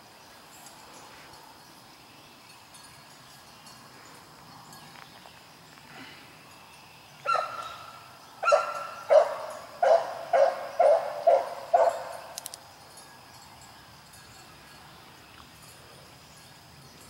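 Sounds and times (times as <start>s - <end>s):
hound barking: 7.3s - 7.8s, 8.4s - 12.4s.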